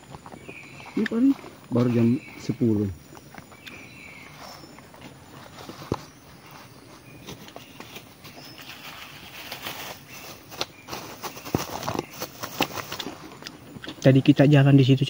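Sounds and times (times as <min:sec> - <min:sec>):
paper and plastic crinkling: 0:04.2 - 0:13.6.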